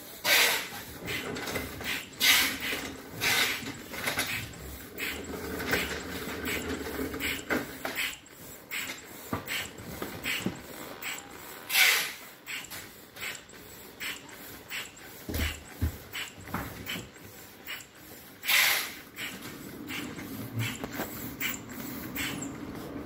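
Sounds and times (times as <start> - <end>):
foot pump puffing air: 0.0 - 23.0.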